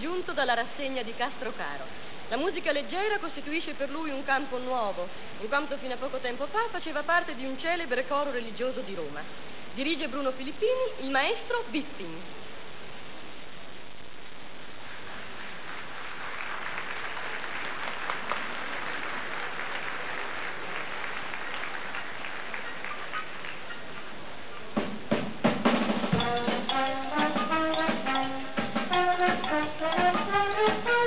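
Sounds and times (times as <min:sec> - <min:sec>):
audience applauding: 0:14.8 - 0:24.7
big band with orchestra: 0:22.9 - 0:31.0
drum strokes: 0:24.7 - 0:31.0
brass melody: 0:25.9 - 0:31.0.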